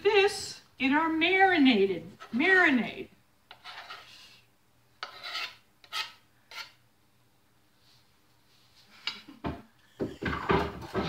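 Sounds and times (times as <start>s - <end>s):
knife scraping cutting board: 3.5s - 4.4s, 5.0s - 6.8s.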